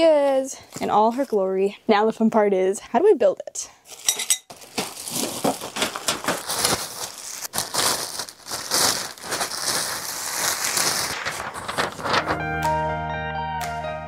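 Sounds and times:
plastic packaging crinkling: 0:03.9 - 0:12.4.

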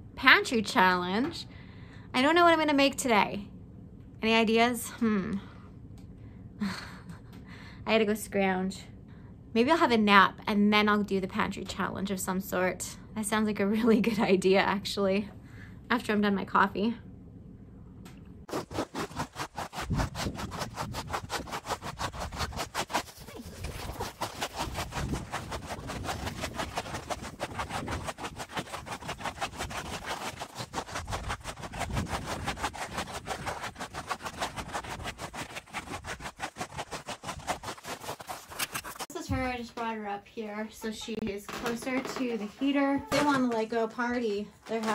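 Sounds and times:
footsteps crunching on snow: 0:18.5 - 0:39.5.

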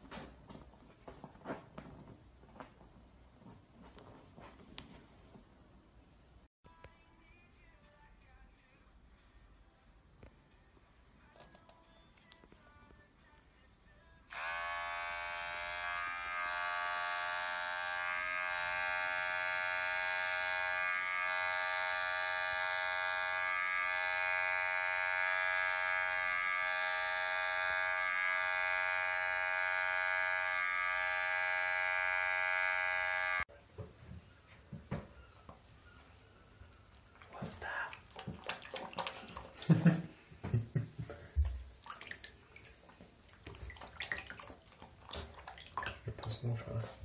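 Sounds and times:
electric clippers buzzing: 0:14.3 - 0:33.5.

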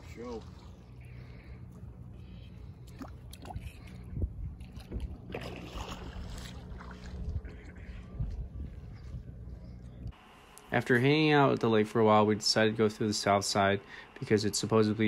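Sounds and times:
light water sounds: 0:00.0 - 0:01.8, 0:02.5 - 0:08.0
wind rumbling on microphone: 0:02.9 - 0:10.1
gust or splash: 0:04.6 - 0:07.2.

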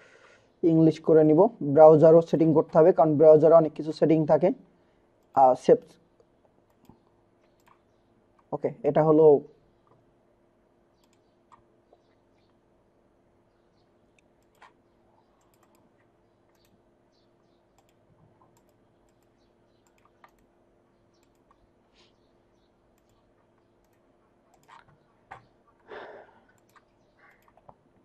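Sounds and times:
computer mouse clicks: 0:06.6 - 0:08.5, 0:11.0 - 0:12.6, 0:14.1 - 0:16.8, 0:17.7 - 0:20.5, 0:21.1 - 0:21.6, 0:22.9 - 0:25.5, 0:26.5 - 0:27.8.

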